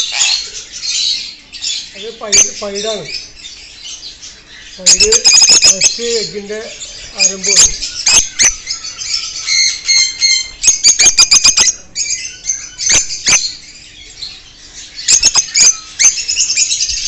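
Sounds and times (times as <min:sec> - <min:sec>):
birds chirping and squawking: 0:00.0 - 0:17.0.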